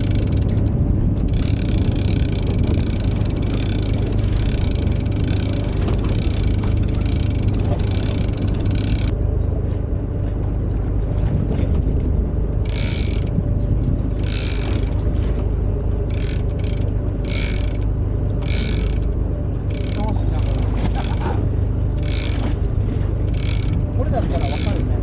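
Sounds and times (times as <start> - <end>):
fishing reel ratchet clicking: 0.0 - 9.1, 12.6 - 13.4, 14.1 - 15.0, 16.1 - 21.4, 22.0 - 22.6, 23.3 - 24.9
low rumble: 0.0 - 25.0.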